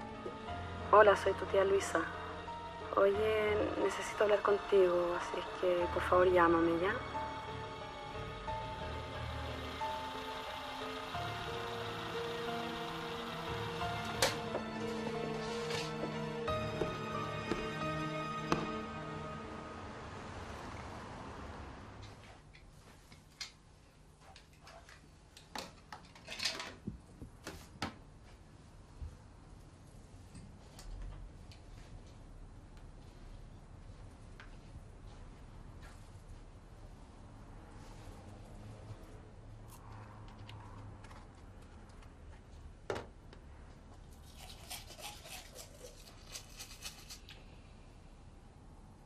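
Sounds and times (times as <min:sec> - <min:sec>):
toothbrush scrubbing teeth: 0:44.1 - 0:47.4.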